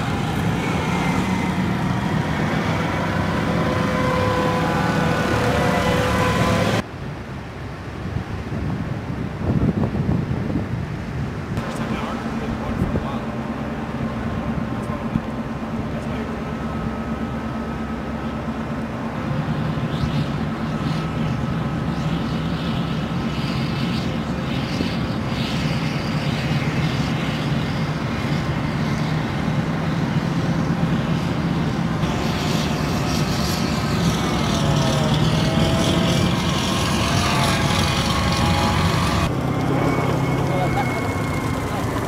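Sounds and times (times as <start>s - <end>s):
diesel engines running: 0.0s - 7.1s, 11.4s - 42.0s
low hum: 0.0s - 7.5s, 11.5s - 42.0s
surf washing and spray hissing: 0.0s - 42.0s.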